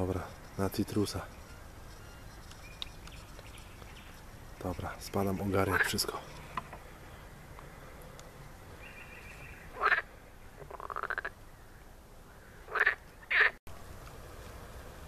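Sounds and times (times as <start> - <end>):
frogs croaking: 0.0 - 13.6
frog rattling call rising: 9.7 - 11.4.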